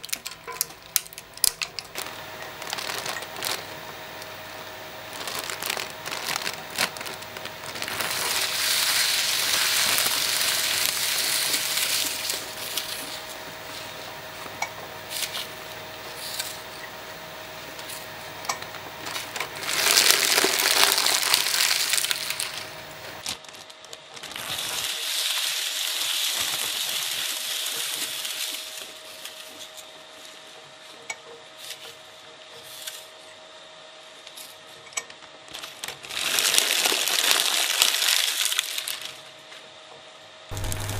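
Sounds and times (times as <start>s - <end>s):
shredder crunching snack bag: 0.0s - 29.9s, 35.5s - 39.3s, 40.5s - 40.9s
steady hum: 0.2s - 23.4s, 40.5s - 40.9s.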